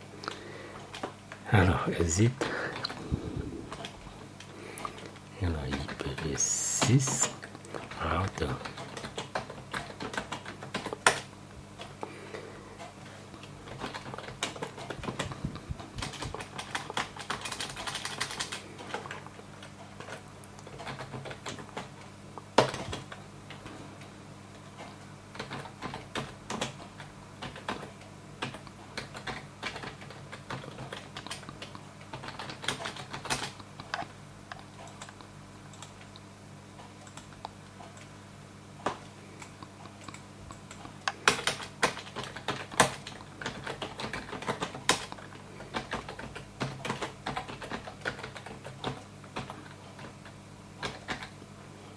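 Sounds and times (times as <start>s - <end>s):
steady low hum: 0.0s - 51.9s
typing on computer keyboard: 5.7s - 11.9s, 13.6s - 15.4s, 16.0s - 22.0s, 22.6s - 23.7s, 24.8s - 34.0s, 38.8s - 51.4s.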